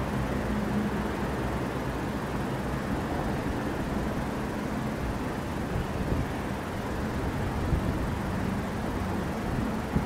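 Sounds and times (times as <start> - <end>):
distant traffic rumble: 0.0 - 10.0
wind noise on microphone: 5.6 - 10.0.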